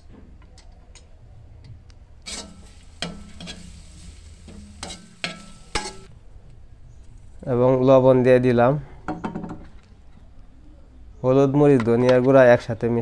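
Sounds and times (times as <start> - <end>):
food frying in oil: 2.3 - 6.1
metal ladle scraping a wok: 2.3 - 6.1.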